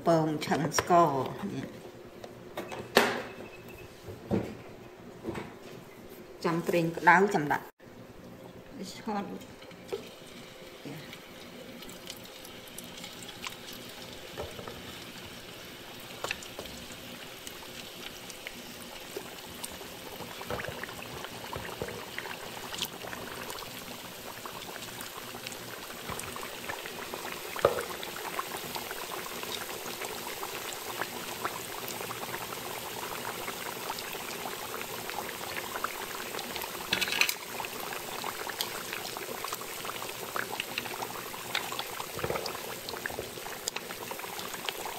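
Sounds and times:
food deep-frying in hot oil: 0:09.4 - 0:44.9.

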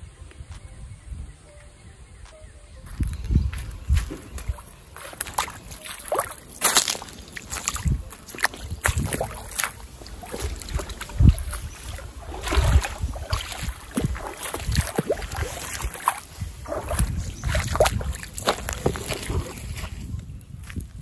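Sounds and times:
footsteps splashing through shallow water: 0:02.2 - 0:21.0.

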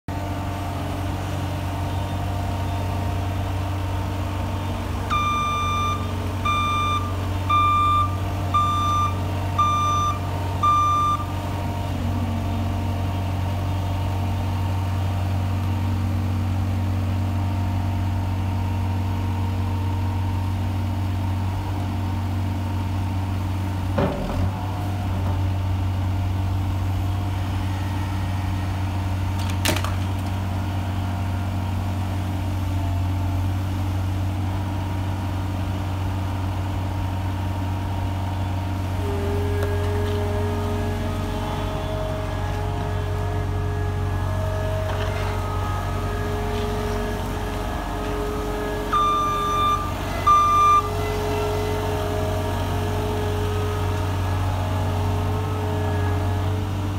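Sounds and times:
skid steer engine hum: 0:00.1 - 0:56.9
reversing alarm beeps: 0:05.1 - 0:11.3, 0:48.9 - 0:51.0.

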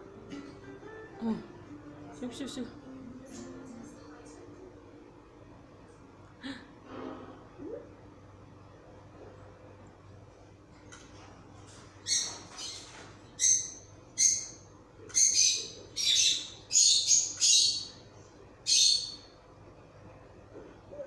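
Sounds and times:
high-pitched chirping calls: 0:12.0 - 0:18.0, 0:18.7 - 0:19.3.

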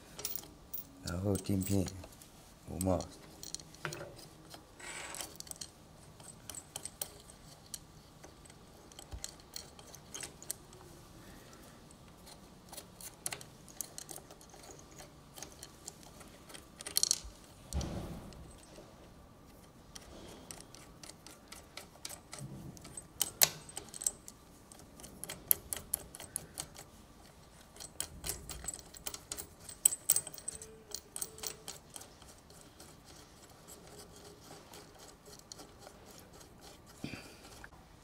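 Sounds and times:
small metal parts clinking: 0:00.0 - 0:02.1, 0:02.7 - 0:10.9, 0:12.2 - 0:17.6, 0:19.9 - 0:37.7.

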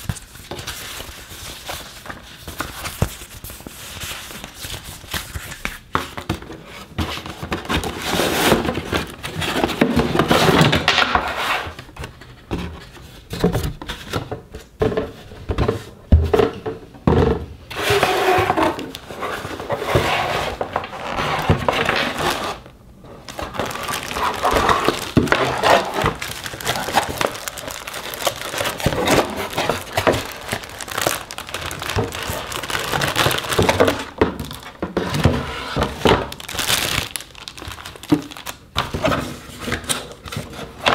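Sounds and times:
cardboard scraping: 0:06.6 - 0:16.5, 0:17.7 - 0:37.0
plastic bag crinkling: 0:23.2 - 0:34.8, 0:36.2 - 0:38.9.

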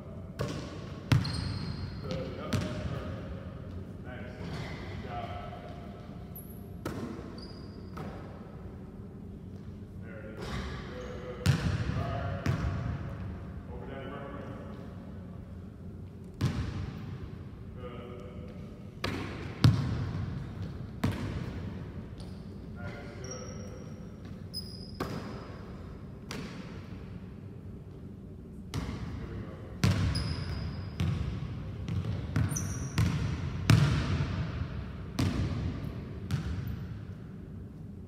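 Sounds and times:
sneakers squeaking on floor: 0:00.4 - 0:02.8, 0:05.6 - 0:08.4, 0:22.2 - 0:25.8, 0:29.8 - 0:31.3, 0:31.9 - 0:33.9
basketball bouncing on hardwood floor: 0:19.0 - 0:20.0, 0:31.9 - 0:34.2
basketball striking hoop: 0:31.9 - 0:34.2.

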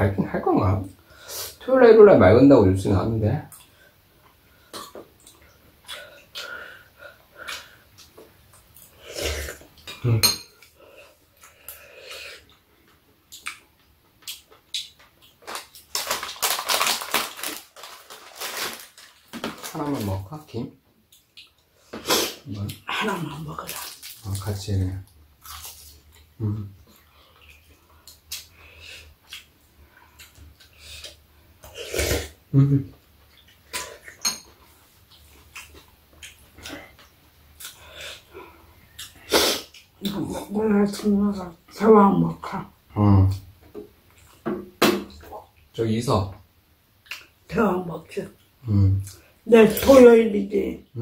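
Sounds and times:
spoons clinking on ceramic bowls: 0:10.2 - 0:10.6
plastic packet crinkling: 0:15.4 - 0:20.3, 0:23.4 - 0:24.5.

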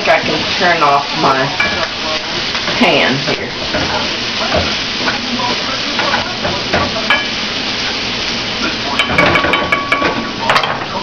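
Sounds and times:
vegetables sizzling in a frying pan: 0:00.0 - 0:11.0
metal clinks against pan: 0:09.0 - 0:10.8.

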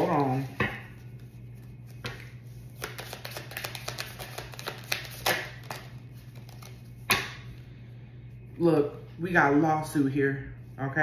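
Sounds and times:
cards being shuffled: 0:00.0 - 0:07.1
cards snapping: 0:02.8 - 0:07.3.

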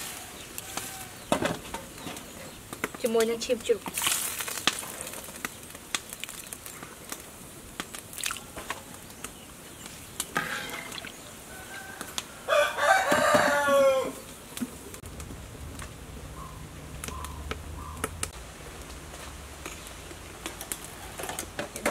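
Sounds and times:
rooster crowing: 0:11.4 - 0:14.3.

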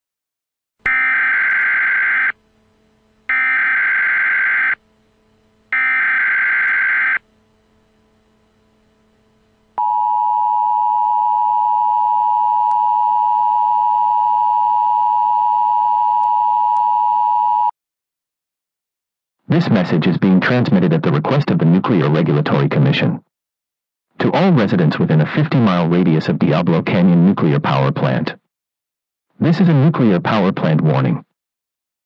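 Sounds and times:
screeching data tones: 0:00.9 - 0:02.4, 0:05.8 - 0:07.2.

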